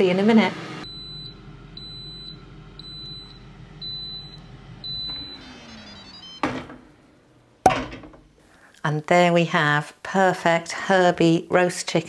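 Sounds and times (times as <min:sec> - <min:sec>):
appliance humming: 0:00.8 - 0:08.4
fan winding down: 0:00.8 - 0:08.4.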